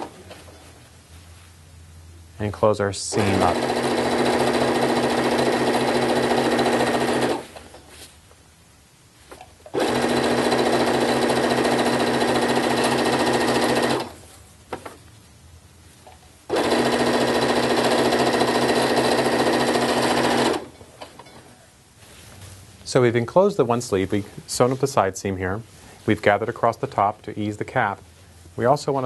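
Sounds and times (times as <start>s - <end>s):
sewing machine stitching: 3.2s - 7.7s, 9.7s - 14.2s, 16.5s - 21.2s.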